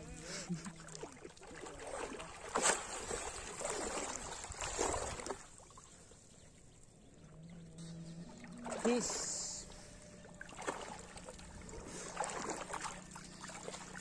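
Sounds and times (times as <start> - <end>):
person splashing in water: 0.8 - 5.7, 8.6 - 9.4, 10.5 - 14.0.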